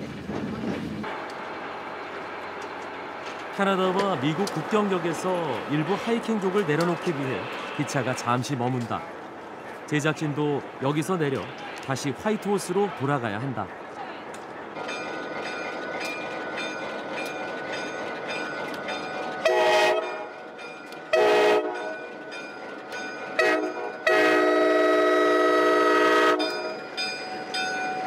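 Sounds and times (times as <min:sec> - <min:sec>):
locomotive bell ringing: 0:14.7 - 0:25.0, 0:25.7 - 0:28.0
locomotive air horn blasts: 0:19.4 - 0:20.3, 0:21.1 - 0:21.9, 0:23.4 - 0:26.7.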